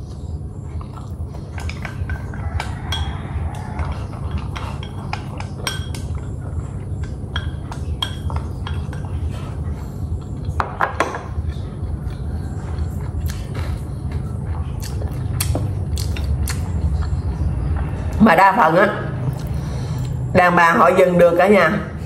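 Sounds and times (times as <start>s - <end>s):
steady low hum: 0.0s - 22.0s
utensils clinking on a dish: 1.6s - 9.4s.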